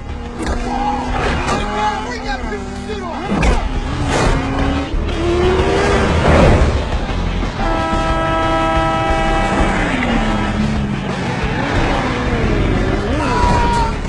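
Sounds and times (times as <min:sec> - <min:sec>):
motorcycle engines revving: 0:00.0 - 0:14.0
truck air horn blast: 0:07.5 - 0:10.7.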